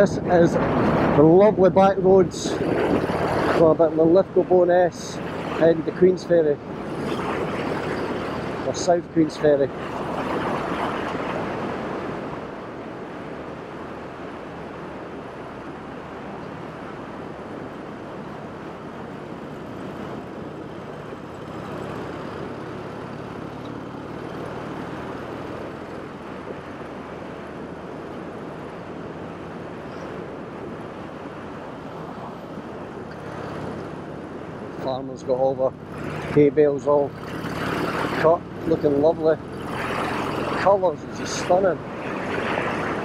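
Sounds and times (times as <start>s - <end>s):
wind and road rush: 0.0s - 43.0s
motorcycle engine cruising: 6.6s - 12.5s, 18.0s - 34.8s, 35.4s - 43.0s.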